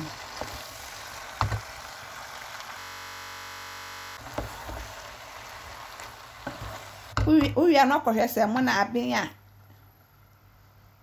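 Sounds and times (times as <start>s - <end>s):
flat steady buzz: 0.0s - 7.2s
stew sizzling in a frying pan: 0.0s - 11.0s
wooden spoon knocking on pan: 1.4s - 1.7s, 6.4s - 7.6s.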